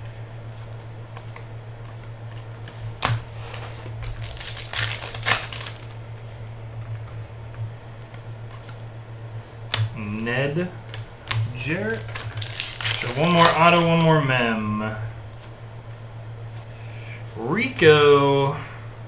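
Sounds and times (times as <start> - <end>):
steady low hum: 0.0 - 19.0
cards clicking and wrapper crinkling: 4.0 - 6.0, 10.9 - 14.6.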